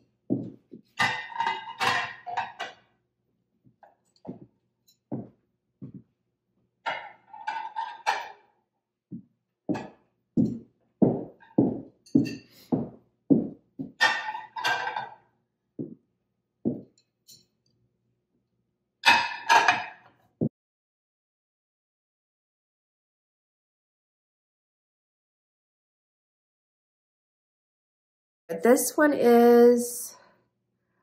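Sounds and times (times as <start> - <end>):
dull knocks of plates: 0.9 - 2.8, 13.9 - 15.2
ceramic plates clinking: 1.0 - 2.8, 14.0 - 15.2.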